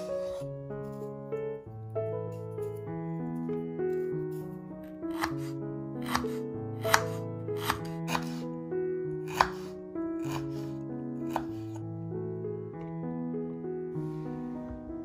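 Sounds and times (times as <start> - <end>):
soft background music: 0.0 - 15.0
knife cutting on wooden board: 5.1 - 8.5, 9.2 - 11.8.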